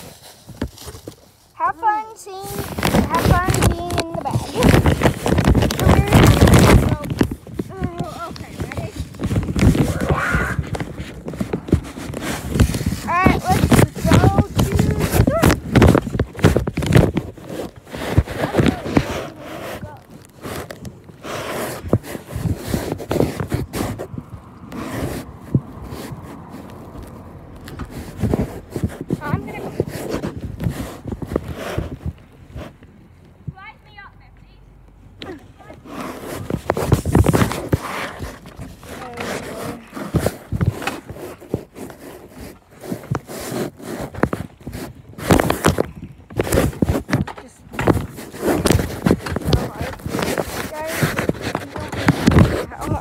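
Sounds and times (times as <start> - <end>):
cloth rubbing over microphone: 0.0 - 34.0, 35.3 - 53.0
soft knocks and bumps: 2.5 - 21.2.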